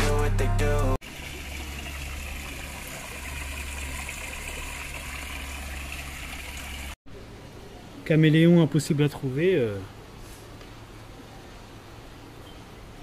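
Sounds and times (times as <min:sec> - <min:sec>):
fountain water splashing: 0:01.0 - 0:07.0.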